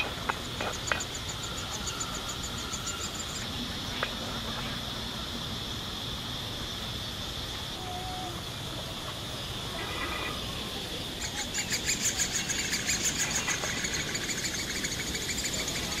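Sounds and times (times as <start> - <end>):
insects droning: 0.0 - 16.0
ticking chirps: 8.8 - 16.0.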